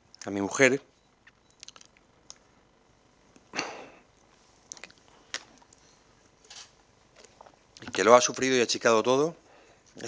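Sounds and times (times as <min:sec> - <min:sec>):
person breathing: 0:09.4 - 0:10.0.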